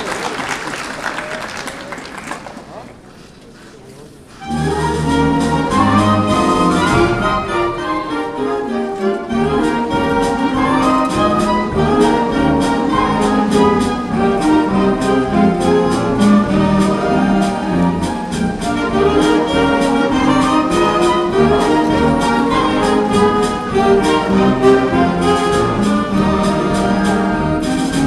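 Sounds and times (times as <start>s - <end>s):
school band playing: 4.3s - 28.0s
steady percussion beat: 4.5s - 7.9s, 9.4s - 28.0s.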